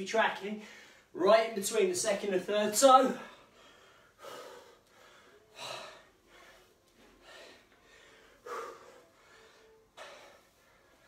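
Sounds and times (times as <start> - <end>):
man breathing hard: 0.6 - 1.2, 3.2 - 11.0.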